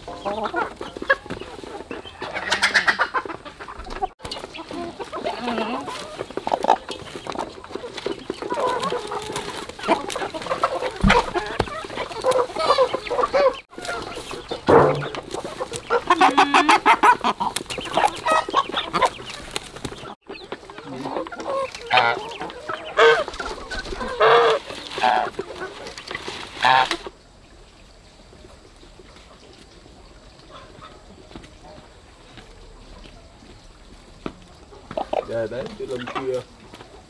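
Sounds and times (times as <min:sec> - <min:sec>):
chickens clucking and squawking: 0:00.0 - 0:37.0
thump: 0:14.7 - 0:15.2.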